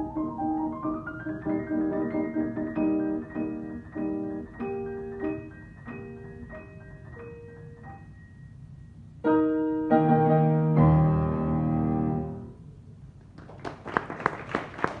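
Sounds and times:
grand piano chords: 0:00.0 - 0:13.2
audience applause: 0:13.4 - 0:15.0.

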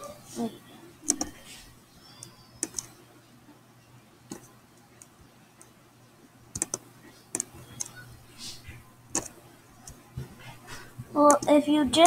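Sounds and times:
faint steady hum: 0:00.0 - 0:12.0
computer clicks: 0:01.0 - 0:01.4, 0:02.2 - 0:03.0, 0:04.3 - 0:05.7, 0:06.5 - 0:08.0, 0:09.1 - 0:10.0, 0:11.3 - 0:11.6.

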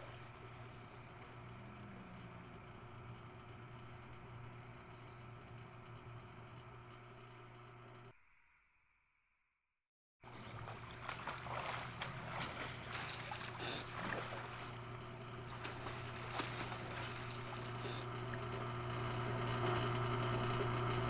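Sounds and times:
steady low hum: 0:00.0 - 0:08.2, 0:10.2 - 0:21.0
person thrashing in water: 0:10.2 - 0:18.4.

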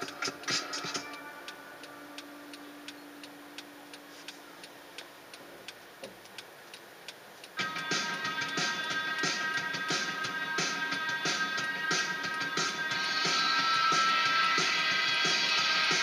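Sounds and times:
faint steady hum: 0:00.0 - 0:16.0
car turn signal ticking: 0:01.8 - 0:07.6.

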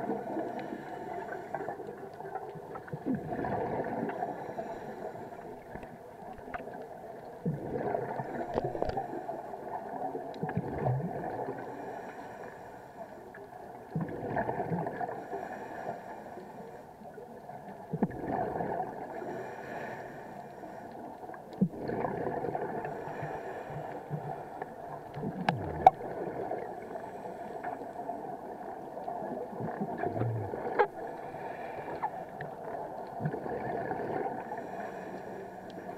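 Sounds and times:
exhaled air bubbling underwater: 0:00.0 - 0:35.9.

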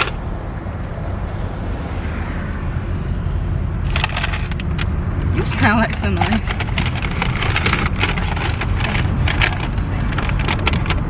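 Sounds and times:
clicks and rustles: 0:00.0 - 0:00.2, 0:03.9 - 0:11.0
car cabin road and engine rumble: 0:00.0 - 0:01.9, 0:02.7 - 0:11.0.

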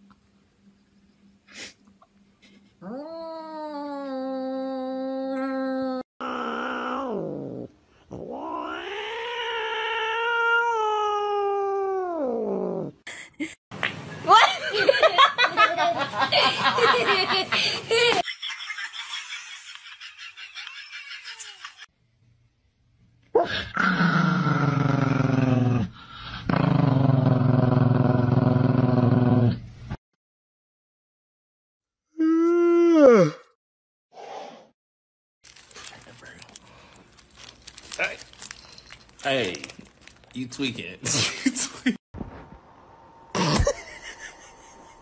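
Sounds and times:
small dog growling: 0:06.2 - 0:13.0, 0:23.4 - 0:29.6
cat yowling: 0:08.2 - 0:12.4.

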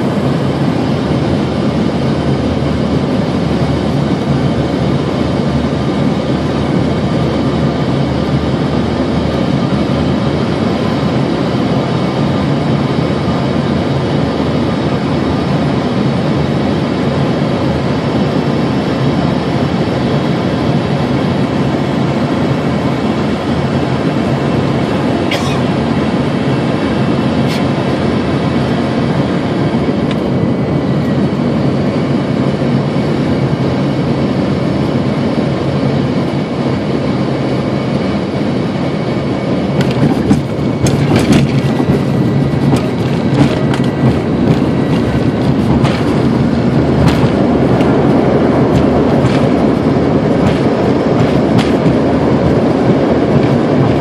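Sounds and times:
airliner engine and airflow rush: 0:00.0 - 0:54.0
cabin rattles and knocks: 0:39.8 - 0:54.0.

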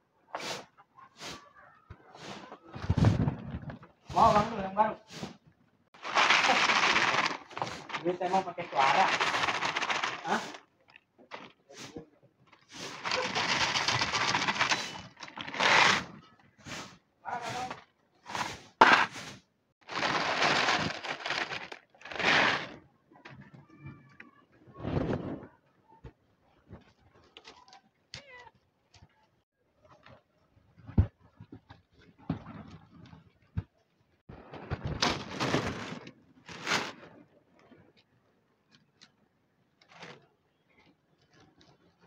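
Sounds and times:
kibble rattling into plastic trays: 0:06.0 - 0:10.6, 0:12.5 - 0:16.1, 0:19.8 - 0:22.8
cats crunching kibble: 0:06.0 - 0:11.6, 0:12.5 - 0:16.0, 0:19.8 - 0:22.8, 0:40.8 - 0:42.0
plastic bag crinkling: 0:06.0 - 0:11.6, 0:12.5 - 0:16.1, 0:19.8 - 0:22.8.

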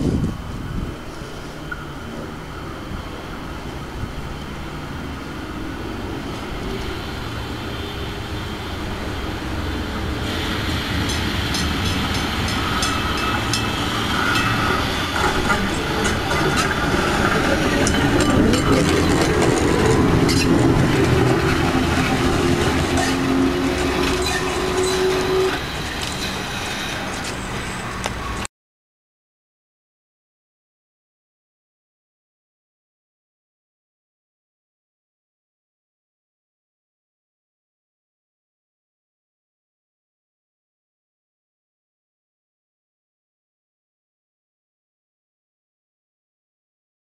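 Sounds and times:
electric train humming: 0:00.1 - 0:28.5
wheels clicking over rails: 0:09.6 - 0:28.5.

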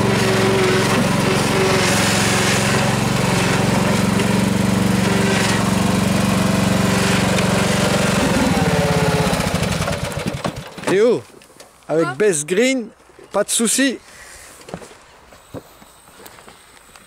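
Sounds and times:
riding lawn mower engine running: 0:00.0 - 0:11.0.

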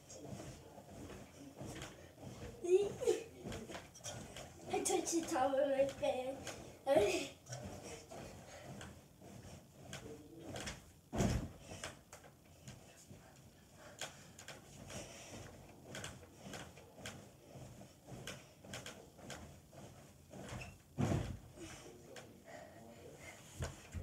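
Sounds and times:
bed knocking with bounces: 0:00.0 - 0:06.8, 0:07.5 - 0:21.6, 0:23.5 - 0:24.0
heavy thump of landing: 0:10.5 - 0:12.0, 0:20.4 - 0:21.8.

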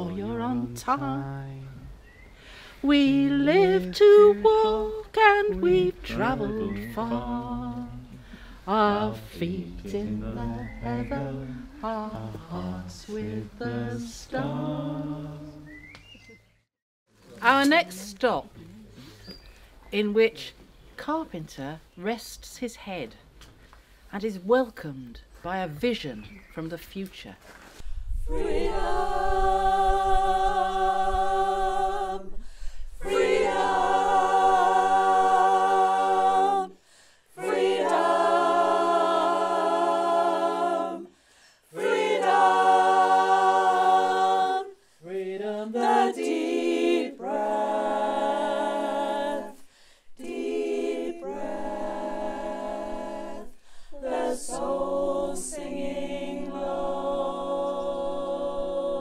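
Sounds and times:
unaccompanied choir singing: 0:00.0 - 0:02.0, 0:02.8 - 0:15.8, 0:28.2 - 0:59.0.

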